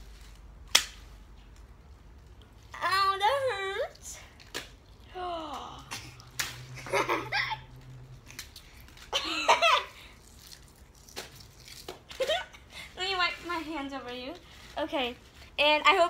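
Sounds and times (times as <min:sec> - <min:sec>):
children laughing and giggling: 0:06.7 - 0:07.8, 0:09.1 - 0:10.0, 0:12.1 - 0:12.7.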